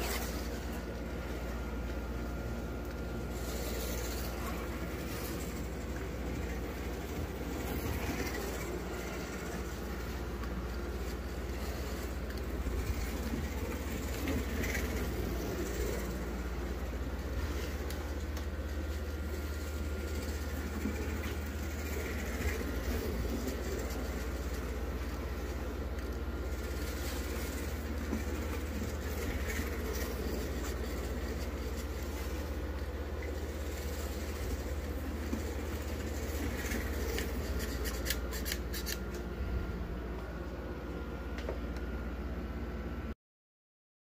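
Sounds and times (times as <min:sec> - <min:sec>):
low steady hum: 0:00.0 - 0:43.2
slot car motor whirring: 0:03.3 - 0:19.4
slot car motor buzzing: 0:03.3 - 0:39.0.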